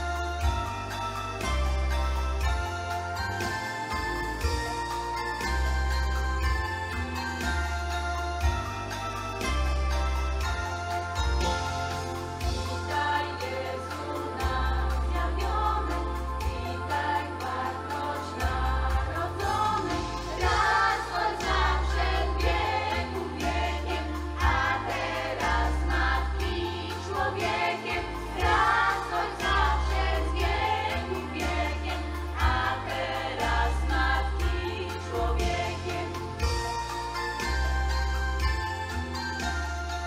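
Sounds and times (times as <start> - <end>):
instrumental accompaniment with deep bass: 0.0 - 40.0
women and girls singing a carol: 12.9 - 36.6.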